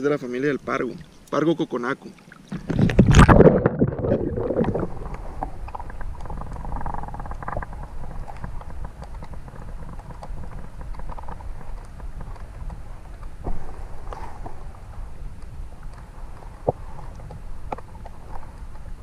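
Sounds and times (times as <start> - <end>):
splash into water: 2.1 - 5.0
muffled underwater rumble: 2.5 - 19.0
faint clicks: 4.6 - 19.0.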